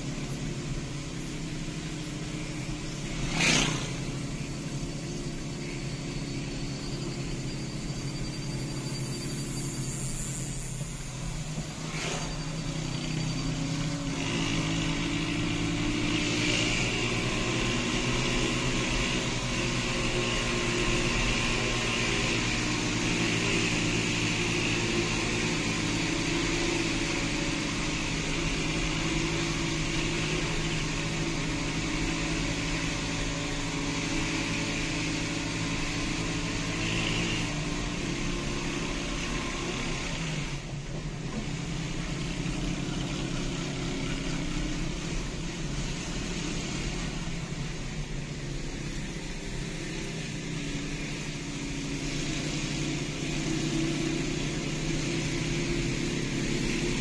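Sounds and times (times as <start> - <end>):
car engine drone: 0.0 - 57.0
tyre and road noise: 0.0 - 57.0.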